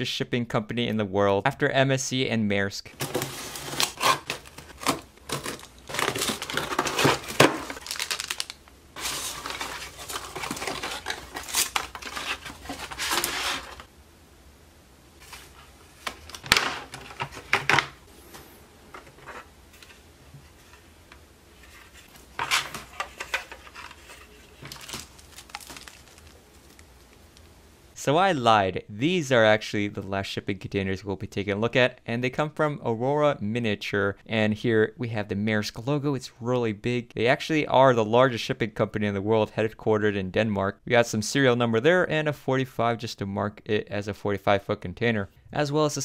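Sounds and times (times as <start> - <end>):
plastic packaging crinkling: 2.9 - 13.9, 22.1 - 27.6
cardboard tearing and scraping: 3.0 - 13.9, 22.1 - 26.8.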